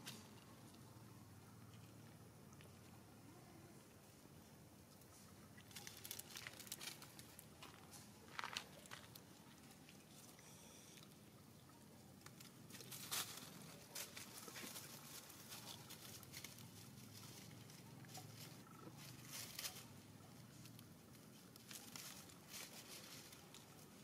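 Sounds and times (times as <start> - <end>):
dry leaves rustling: 5.6 - 9.5, 12.3 - 24.0.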